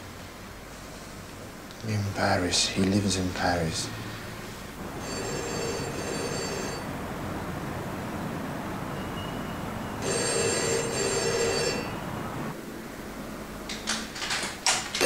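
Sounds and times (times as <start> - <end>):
telephone bell ringing: 4.9 - 6.9, 9.0 - 12.2.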